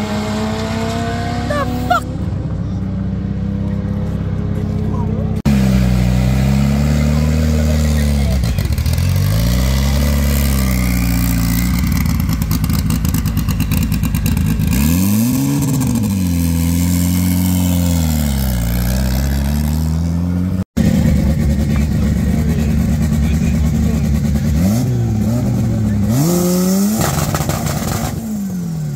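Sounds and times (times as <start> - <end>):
car engine revving: 0.0 - 28.9
engine idling: 20.8 - 26.0.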